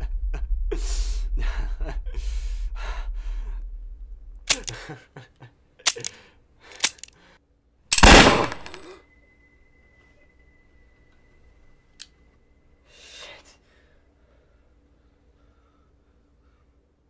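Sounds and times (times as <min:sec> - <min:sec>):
revolver gunshot: 0:08.0 - 0:08.9
high-pitched ringing tone: 0:08.8 - 0:12.8.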